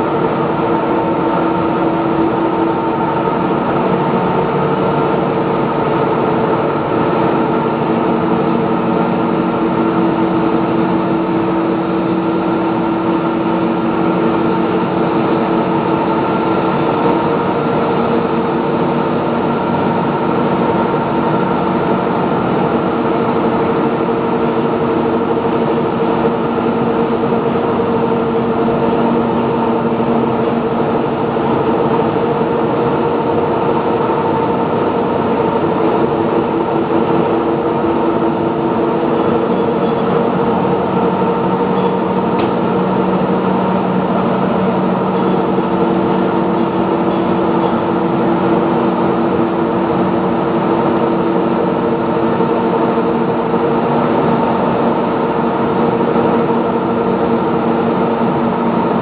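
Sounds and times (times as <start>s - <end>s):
industrial machinery drone: 0.0s - 59.0s.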